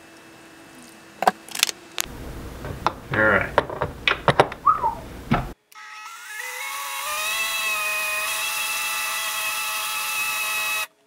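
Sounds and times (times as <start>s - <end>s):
handling clicks and knocks: 2.0s - 5.6s.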